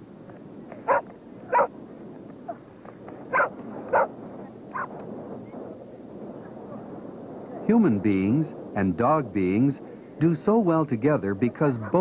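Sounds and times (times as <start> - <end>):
canine yips: 0.8 - 1.7, 3.3 - 4.1, 4.7 - 4.9.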